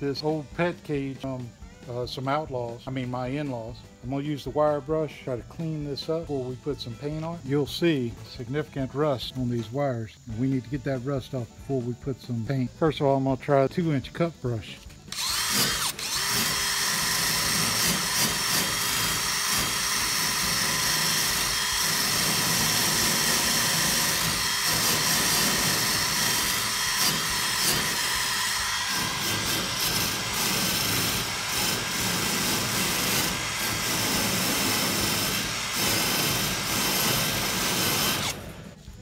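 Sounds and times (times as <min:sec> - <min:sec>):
drill motor whine: 0:15.1 - 0:39.0.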